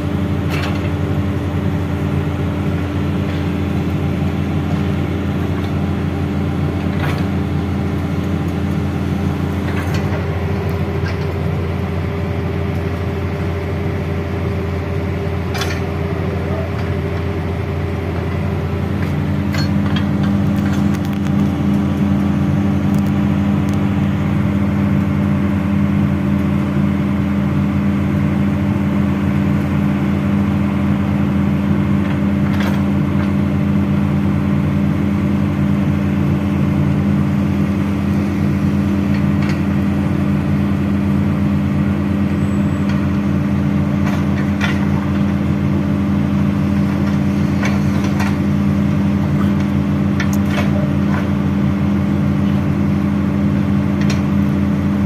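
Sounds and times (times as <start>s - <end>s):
diesel engine running steadily: 0.0s - 55.0s.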